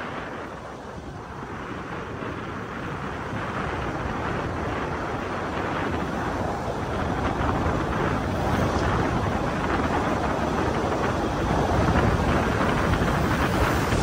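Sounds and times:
tyre noise on wet road: 0.0s - 14.0s
wind rush: 0.0s - 14.0s.

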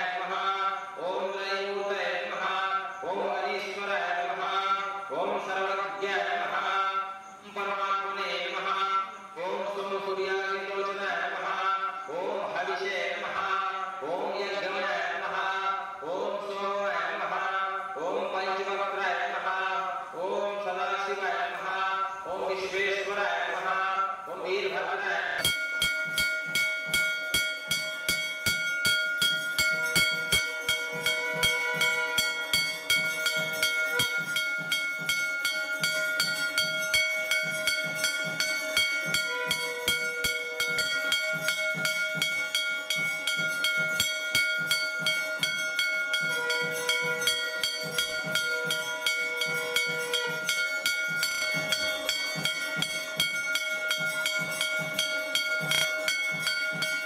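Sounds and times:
brass handbell ringing: 25.4s - 57.0s.

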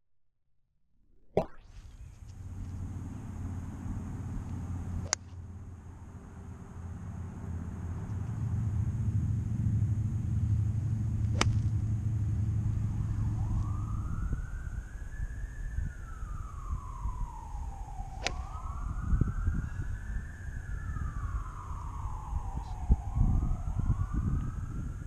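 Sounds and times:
low rumble: 1.8s - 25.0s
golf club striking ball: 5.0s - 5.4s, 11.2s - 11.9s, 18.2s - 18.5s
siren wailing: 12.3s - 25.0s.

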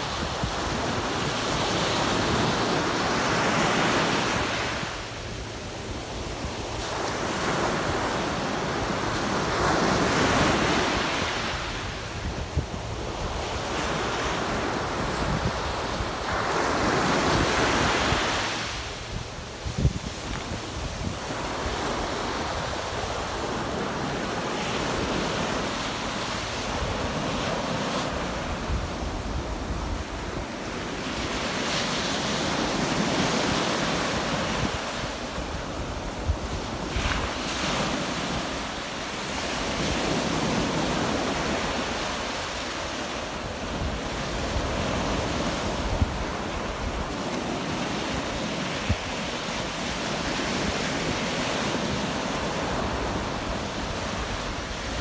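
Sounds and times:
sea waves breaking on beach: 0.0s - 55.0s
wind buffeting microphone: 9.7s - 23.8s.

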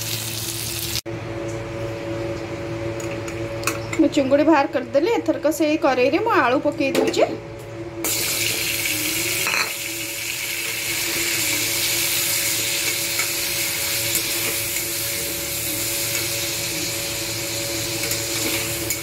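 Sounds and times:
potatoes sizzling in hot oil: 0.0s - 1.0s, 8.1s - 19.0s.

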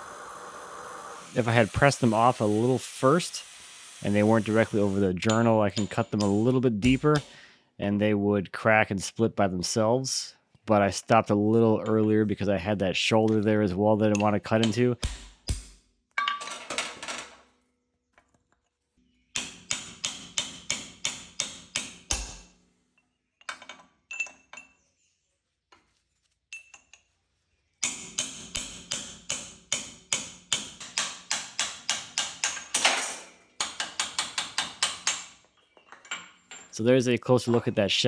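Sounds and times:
hammer striking chisel on metal: 5.2s - 7.4s, 19.3s - 22.5s, 27.8s - 35.4s.

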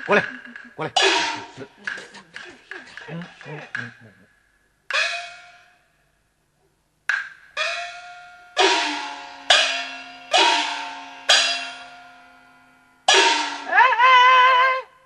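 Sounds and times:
wavering high note: 7.6s - 15.0s
gong strikes: 8.5s - 13.8s.

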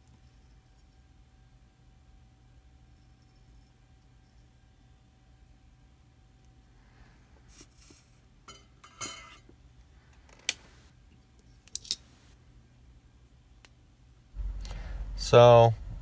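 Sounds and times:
low rumble: 14.4s - 16.0s.

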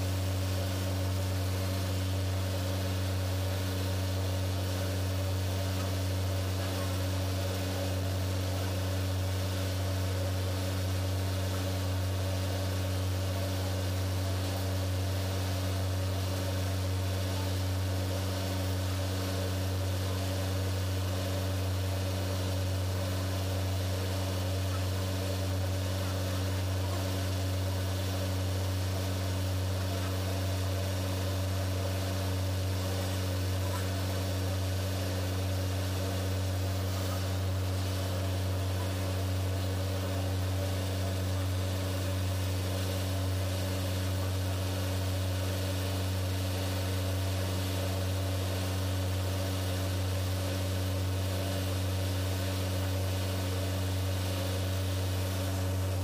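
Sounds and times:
engine-room machinery droning: 0.0s - 56.0s.

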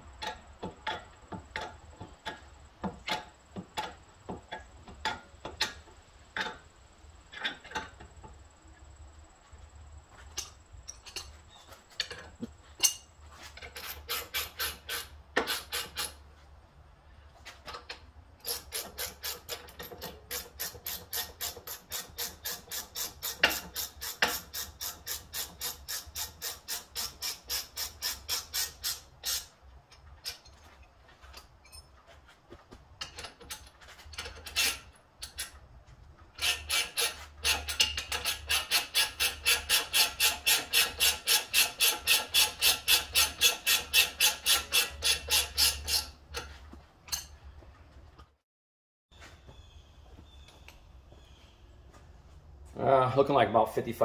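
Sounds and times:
hand ratchet clicking: 13.6s - 16.2s, 17.8s - 29.5s, 36.4s - 46.5s.

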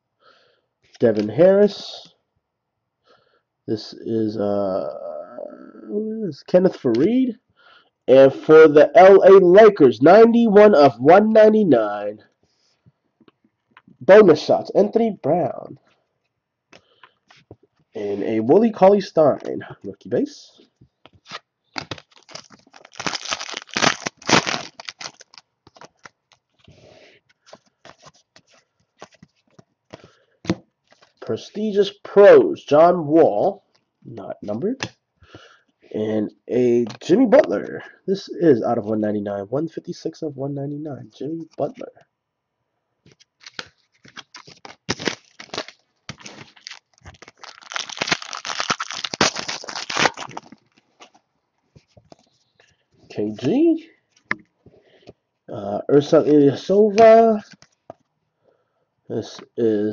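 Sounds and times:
cards clicking and rustling: 21.1s - 31.2s, 43.1s - 51.2s
wrapper tearing and crinkling: 21.2s - 26.6s, 43.1s - 51.2s.

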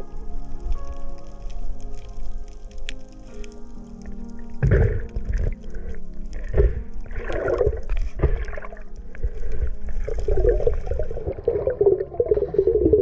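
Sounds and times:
faint background music: 0.0s - 13.0s
muffled underwater rushing and bubbling: 4.0s - 13.0s.

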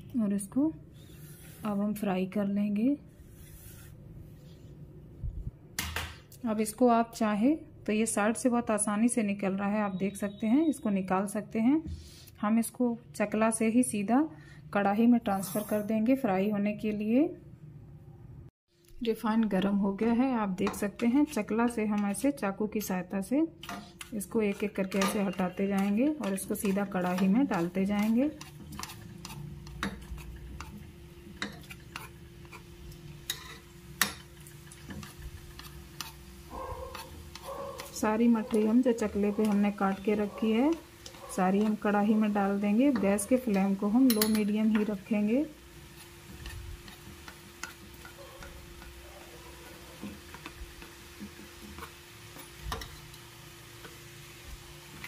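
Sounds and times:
dough frying in hot oil: 20.8s - 55.0s
knife scraping on wooden board: 26.6s - 30.8s, 31.4s - 32.7s, 34.9s - 38.6s.

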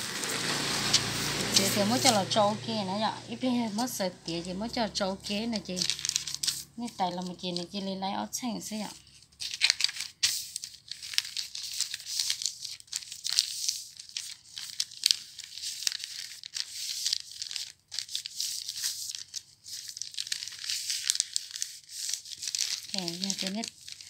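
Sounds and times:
cloth rustling and scratching: 0.0s - 2.3s.

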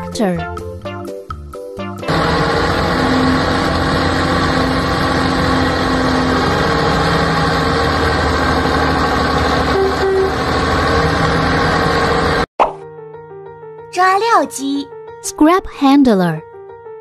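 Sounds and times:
tractor diesel engine under load: 2.0s - 12.5s.

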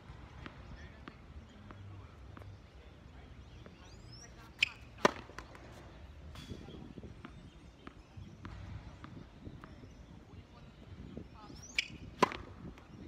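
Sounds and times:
tennis ball hits on court: 4.6s - 5.8s, 11.8s - 12.9s.

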